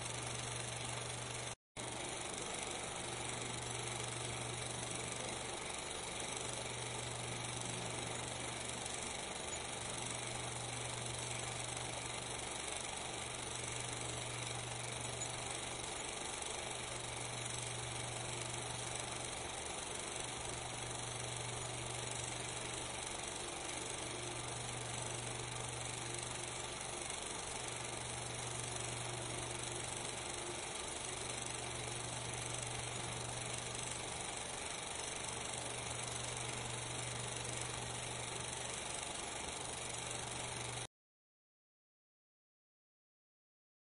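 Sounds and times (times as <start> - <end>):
steady hiss: 0.0 - 40.9.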